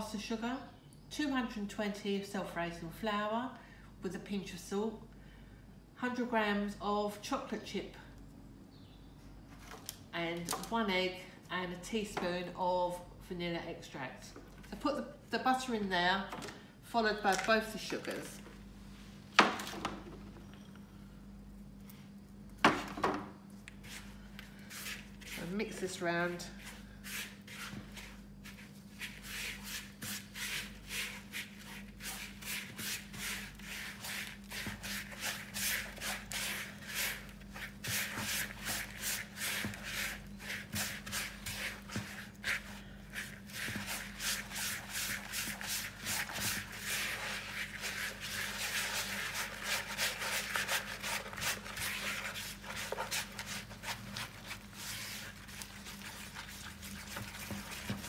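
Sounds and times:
scratchy rubbing in plastic bowl: 23.8s - 58.0s.

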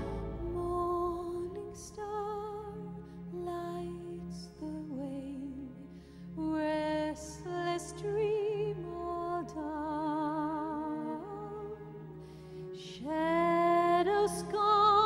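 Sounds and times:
low accompaniment: 0.0s - 2.0s
slow melody with vibrato: 0.0s - 2.4s.

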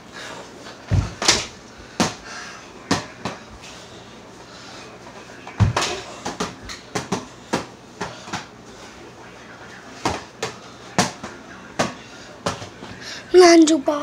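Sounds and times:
ball bouncing on hard floor: 5.6s - 8.5s.

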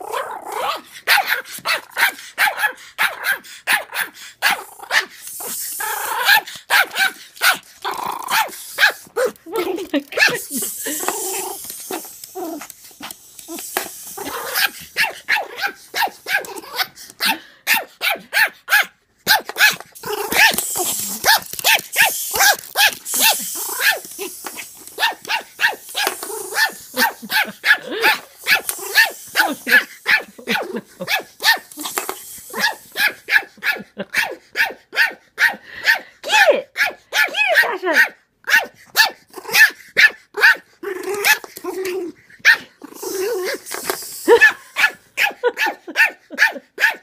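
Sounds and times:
dog growling: 4.4s - 6.6s, 7.8s - 17.0s, 20.0s - 24.8s, 40.8s - 44.7s.

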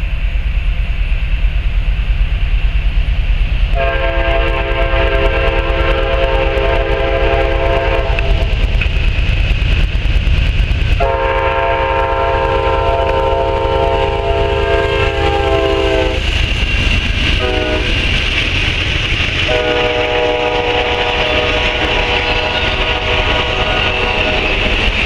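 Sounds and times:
train rumbling past: 0.0s - 25.0s
locomotive horn blasts: 3.8s - 8.5s, 11.0s - 16.2s, 17.4s - 18.0s, 19.5s - 24.8s.

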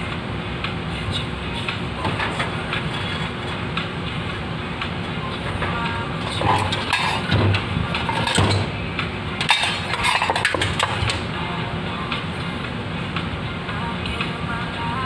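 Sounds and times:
steady background noise: 0.0s - 15.0s
metal parts rattling and clinking: 6.3s - 8.8s, 9.4s - 11.2s.

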